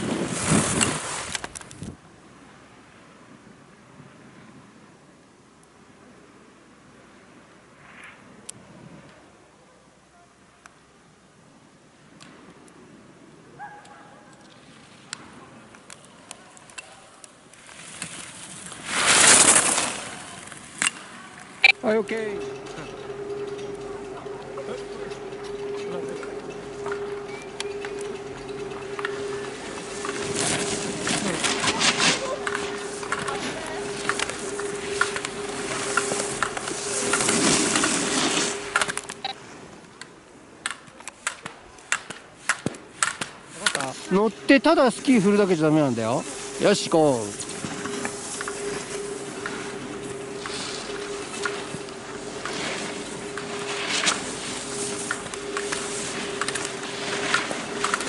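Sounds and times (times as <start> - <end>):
skis carving on snow: 0.0 - 2.0, 17.6 - 39.7, 42.4 - 58.0
short high tone: 21.6 - 39.4, 43.8 - 58.0.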